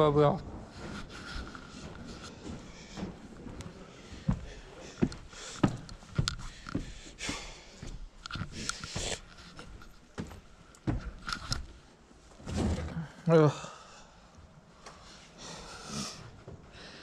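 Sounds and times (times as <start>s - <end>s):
footsteps on stairs: 0.0s - 11.8s
heavy panting breaths: 0.8s - 9.6s, 14.9s - 17.0s.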